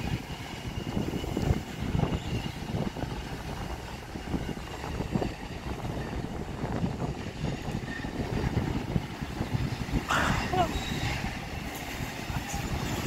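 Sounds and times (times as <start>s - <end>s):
train wheels rumbling on track: 0.0s - 13.0s.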